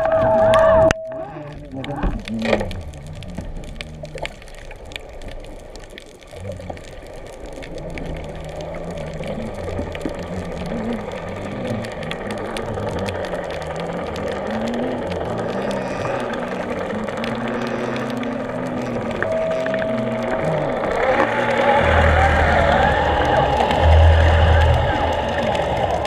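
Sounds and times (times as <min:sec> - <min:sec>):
faint clicks: 0:00.0 - 0:26.0
underwater water wash: 0:00.0 - 0:26.0
low wavering hum: 0:06.4 - 0:26.0.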